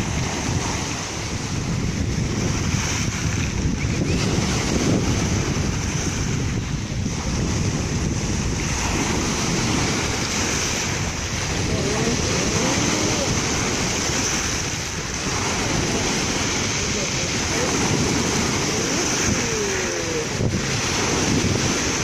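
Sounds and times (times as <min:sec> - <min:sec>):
surf breaking on pebble beach: 0:00.0 - 0:22.0.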